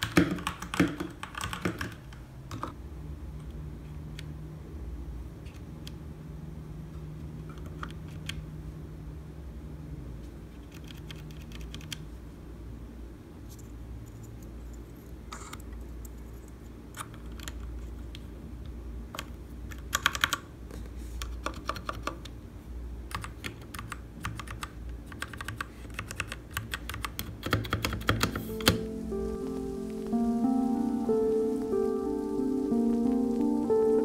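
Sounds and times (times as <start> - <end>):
mechanical keyboard keystrokes: 0.0 - 2.8, 10.6 - 12.0, 19.2 - 20.5, 21.2 - 22.4, 23.1 - 28.8.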